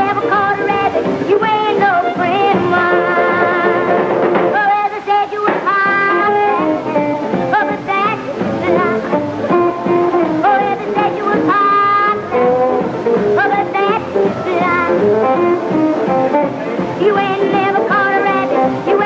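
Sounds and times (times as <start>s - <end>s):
girl singing: 0.0s - 3.9s, 4.5s - 15.4s, 17.0s - 19.0s
rock band playing: 0.0s - 4.8s, 5.7s - 19.0s.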